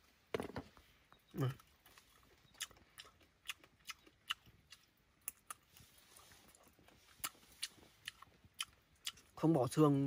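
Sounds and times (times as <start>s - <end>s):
person chewing bones: 1.3s - 9.4s.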